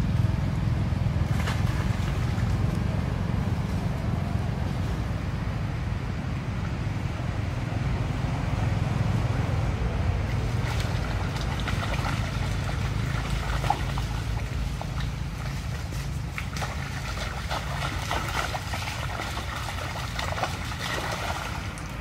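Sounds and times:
splashes in muddy water: 0:01.2 - 0:02.8, 0:10.2 - 0:22.0.

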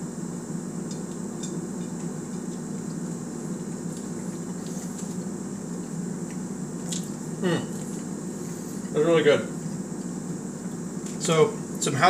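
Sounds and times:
low room hum: 0:00.0 - 0:12.0
chewing clicks: 0:06.2 - 0:07.2.

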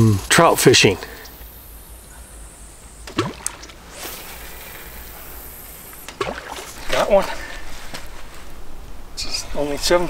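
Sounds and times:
fishing reel line hiss: 0:00.3 - 0:08.6.

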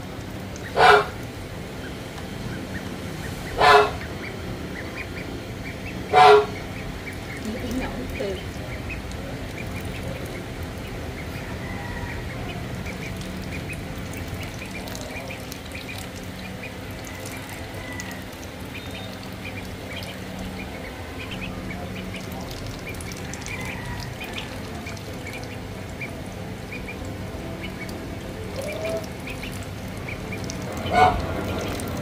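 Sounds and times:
ducklings peeping: 0:00.2 - 0:32.0
duckling bills clicking in dish: 0:07.3 - 0:10.9, 0:12.8 - 0:21.3, 0:21.9 - 0:26.1, 0:27.6 - 0:32.0.

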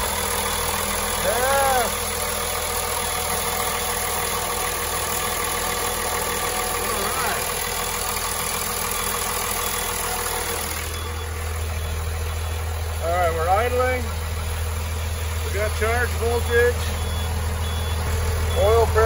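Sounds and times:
diesel engine idling: 0:00.0 - 0:19.0.

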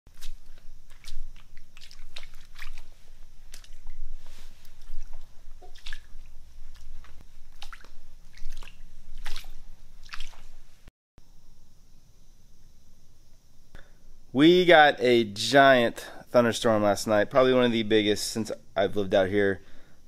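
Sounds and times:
flip-flop footsteps in water: 0:00.1 - 0:10.7.

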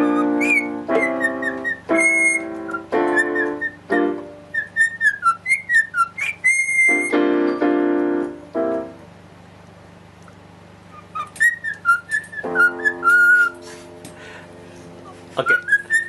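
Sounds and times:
piano-like chords: 0:00.0 - 0:05.3, 0:06.8 - 0:09.6, 0:10.9 - 0:16.0
whistled melody: 0:00.0 - 0:07.7, 0:10.9 - 0:13.7, 0:15.0 - 0:16.0.

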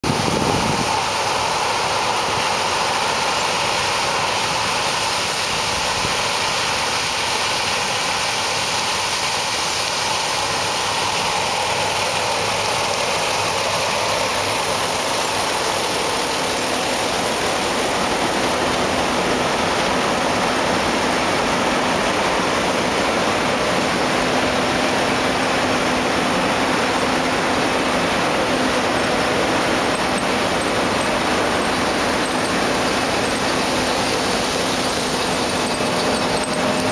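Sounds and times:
combine harvester machinery rushing: 0:10.3 - 0:36.9.

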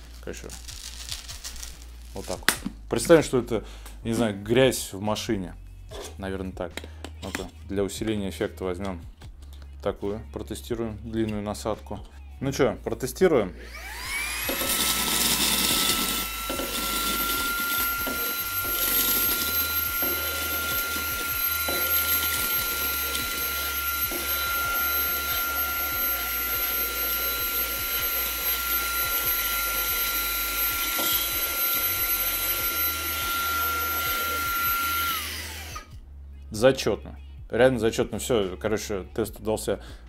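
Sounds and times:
handheld vacuum motor whine: 0:13.6 - 0:36.0.

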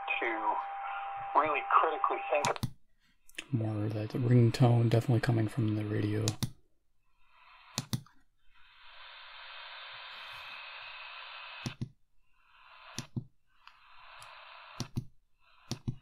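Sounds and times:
radio static hissing: 0:00.0 - 0:02.6, 0:08.7 - 0:11.8.

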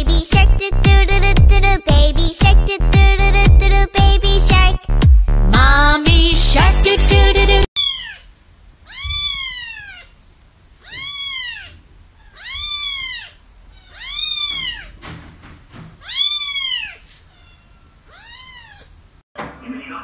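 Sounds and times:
kitten meowing: 0:07.8 - 0:08.2, 0:08.8 - 0:10.2, 0:10.8 - 0:14.9, 0:16.0 - 0:19.0.

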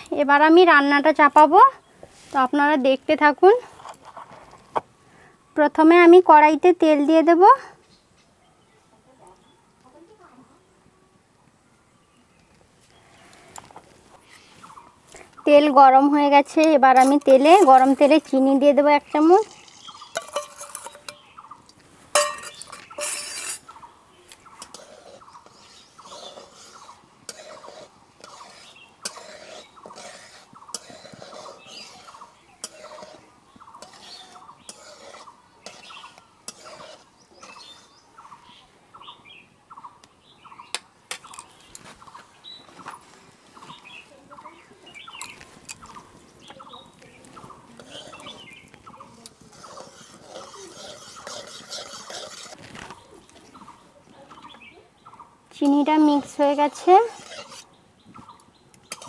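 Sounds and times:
metal utensils scraping a pan: 0:16.6 - 0:21.3, 0:22.1 - 0:38.0, 0:46.7 - 0:53.0, 0:55.6 - 0:57.8.

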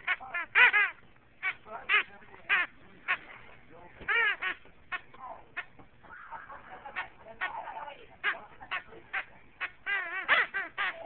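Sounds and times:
squeaky toy squeaking: 0:00.0 - 0:03.2, 0:04.1 - 0:05.0, 0:09.1 - 0:11.0.

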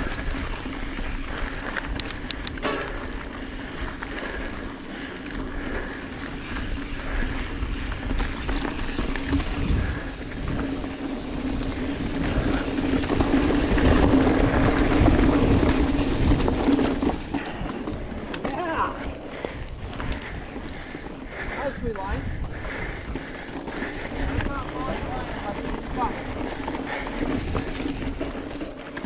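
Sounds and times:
bike rattling: 0:00.0 - 0:29.0
bike tyres rolling on dirt: 0:00.0 - 0:29.0
wind on microphone: 0:06.4 - 0:17.6.

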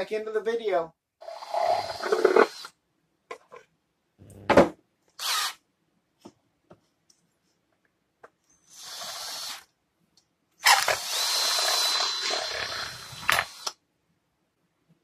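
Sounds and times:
cordless drill boring plastic: 0:01.2 - 0:02.7, 0:05.2 - 0:05.6, 0:08.7 - 0:09.7, 0:10.6 - 0:13.8.

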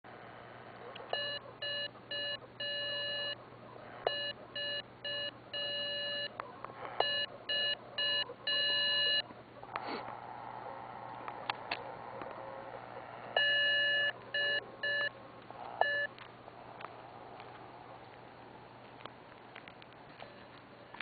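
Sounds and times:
morse code beeps: 0:01.1 - 0:03.4, 0:04.0 - 0:06.3, 0:07.0 - 0:09.3, 0:13.4 - 0:15.1, 0:15.8 - 0:16.1.

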